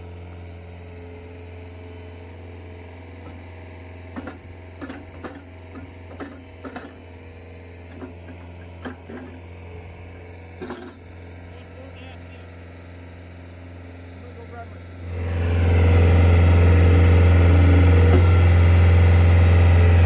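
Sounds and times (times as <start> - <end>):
loader engine running: 0.0 - 20.0
shovel digging dirt: 8.0 - 9.4, 10.6 - 11.0.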